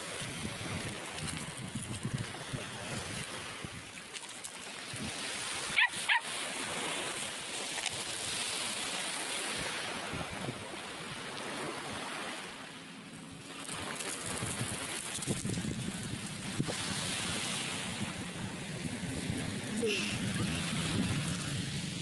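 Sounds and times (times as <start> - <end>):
surf washing: 0.0 - 22.0
dog barking: 5.8 - 6.3.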